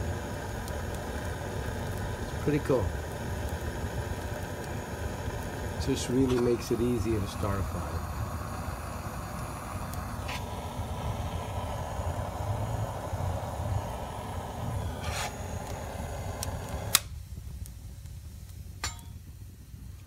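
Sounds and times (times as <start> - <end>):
butane torch hissing: 0.0 - 20.0
fire crackling: 0.0 - 20.0
torch switch click: 15.0 - 17.2.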